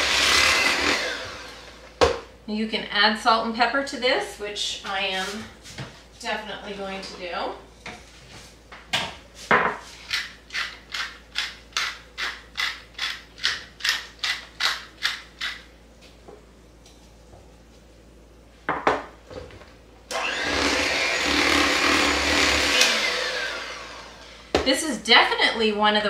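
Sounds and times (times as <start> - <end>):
electric hand mixer running: 0.0 - 2.0, 20.1 - 24.6.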